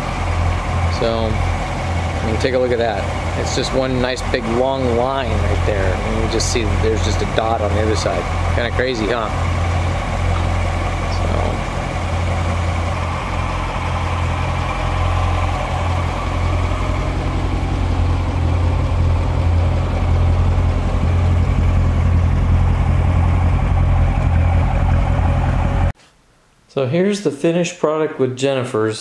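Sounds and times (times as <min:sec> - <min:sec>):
car engine idling: 0:00.0 - 0:26.0.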